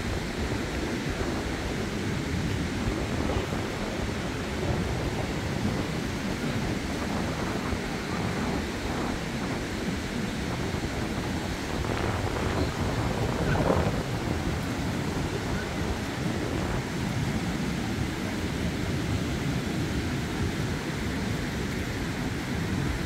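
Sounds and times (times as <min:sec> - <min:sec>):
surf breaking on beach: 0:00.0 - 0:23.0
wind buffeting microphone: 0:00.0 - 0:23.0.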